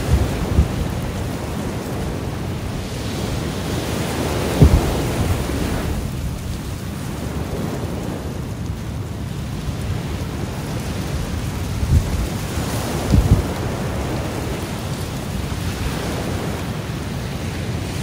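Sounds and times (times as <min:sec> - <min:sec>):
ocean waves washing on shore: 0:00.0 - 0:18.0
wind: 0:00.0 - 0:18.0
low thumps: 0:04.6 - 0:05.4.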